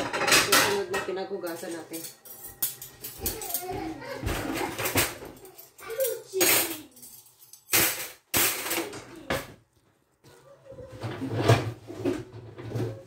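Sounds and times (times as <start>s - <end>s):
dishes clattering: 0.0s - 9.7s.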